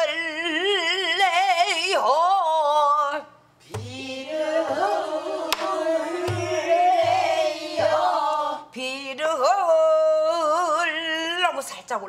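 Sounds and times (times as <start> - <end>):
barrel drum strokes: 5.5 - 8.2.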